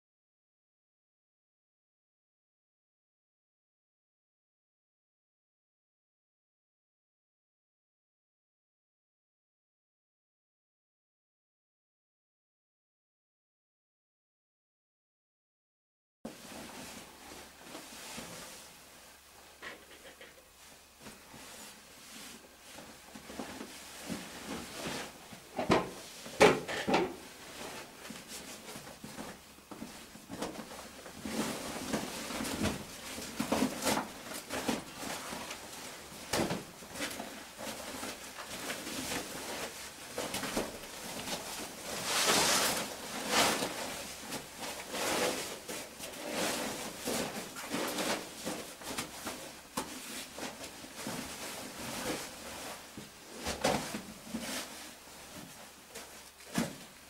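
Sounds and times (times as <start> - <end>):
plastic sheeting and cloth rustling: 16.3 - 57.0.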